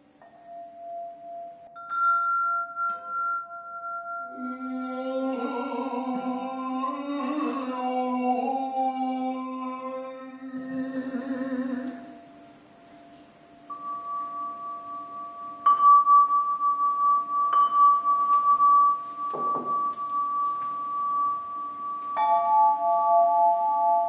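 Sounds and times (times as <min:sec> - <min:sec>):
crystal harp bell-like tones: 0:00.2 - 0:04.6, 0:12.3 - 0:24.0.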